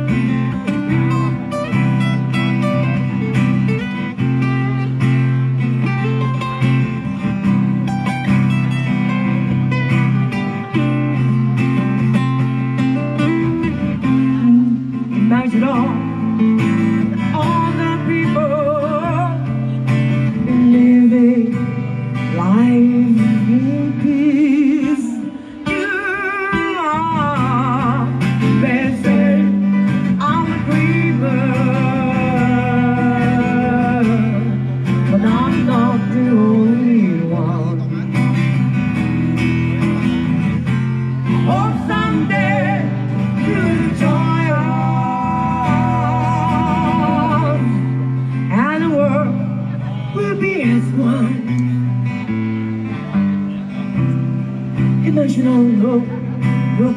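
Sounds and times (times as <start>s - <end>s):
acoustic guitar: 0.0s - 56.9s
person singing: 13.2s - 37.9s, 41.2s - 52.0s.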